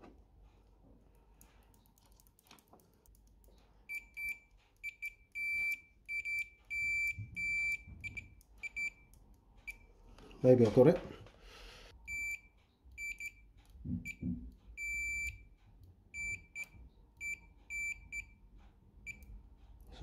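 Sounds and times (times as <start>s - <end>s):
multimeter continuity beeps: 3.9s - 10.0s, 12.0s - 18.4s, 19.0s - 19.3s.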